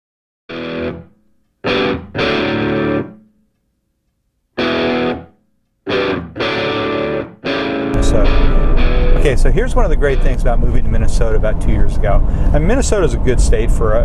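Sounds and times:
distorted electric guitar chords: 0.5 - 3.2, 4.6 - 5.3, 5.9 - 11.2.

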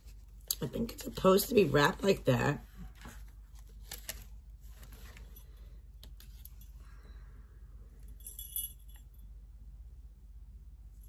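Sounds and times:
small bells jingling: 8.2 - 9.0.

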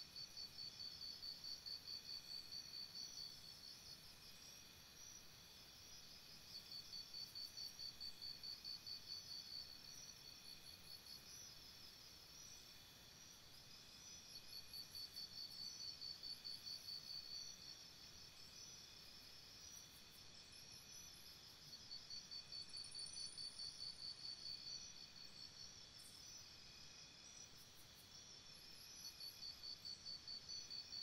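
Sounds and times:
pulsing insect chirp: 0.2 - 31.0.

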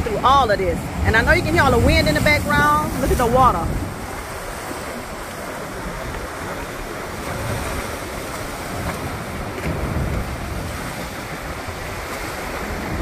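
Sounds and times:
surf breaking against rocks: 0.0 - 13.0
wind buffeting microphone: 0.0 - 13.0.

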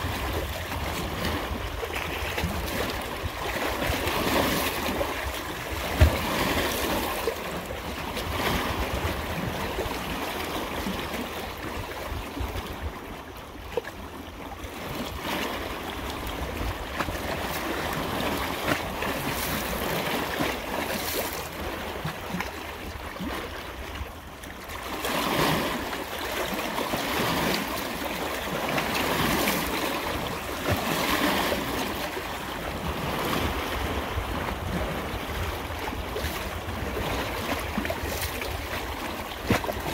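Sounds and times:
wind rumble on microphone: 0.0 - 20.5, 28.5 - 39.9
rushing water: 0.0 - 39.9.

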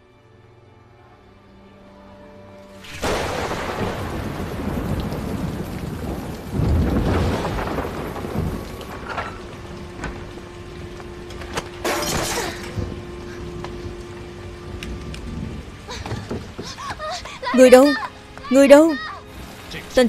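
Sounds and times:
soft music: 0.0 - 5.6, 7.6 - 20.0
heavy rain: 1.3 - 20.0
low rumble of thunder: 3.0 - 11.5, 12.6 - 16.6.

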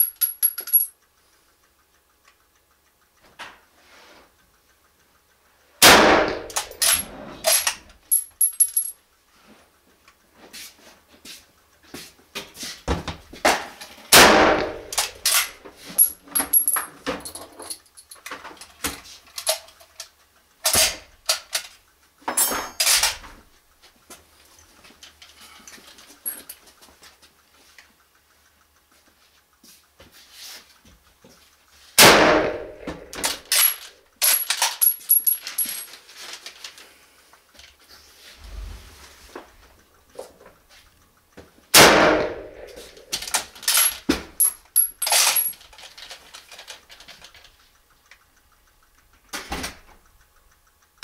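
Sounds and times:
brass cases tinkling: 0.0 - 1.0, 8.1 - 9.0, 33.6 - 35.9, 43.8 - 45.6
rifle shots echoing: 5.8 - 6.6, 14.1 - 15.0, 32.0 - 33.4, 41.8 - 42.8.

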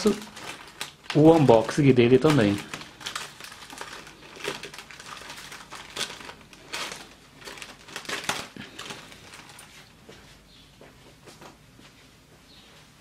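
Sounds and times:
scissors cutting plastic: 0.0 - 9.7
plastic mailer crinkling: 0.0 - 10.0.

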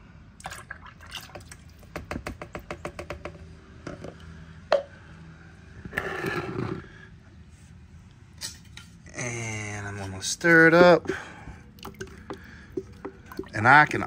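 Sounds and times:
rough rustling scrape: 5.9 - 7.8.

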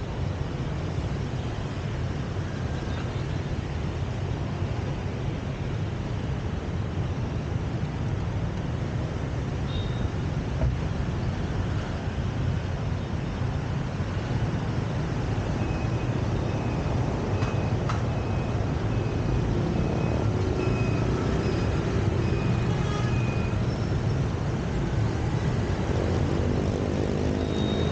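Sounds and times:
cars passing: 13.8 - 27.9
motorbikes passing: 18.5 - 27.9.

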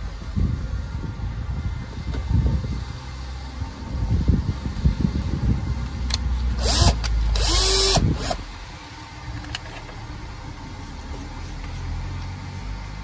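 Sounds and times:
low wind rumble: 0.0 - 12.8
cordless drill motor spinning: 6.5 - 8.4.

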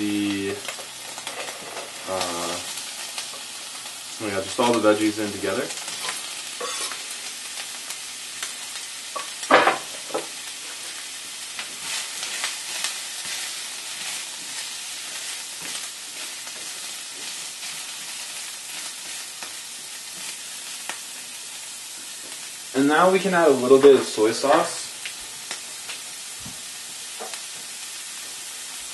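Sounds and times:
vegetables sizzling in frying pan: 0.0 - 28.9
spatula scraping pan: 5.9 - 7.0.

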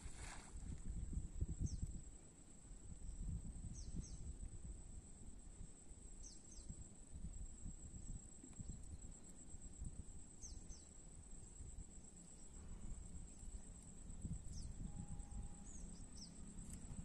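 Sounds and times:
wind rumble on microphone: 0.0 - 17.0
high-pitched insect drone: 12.3 - 17.0.

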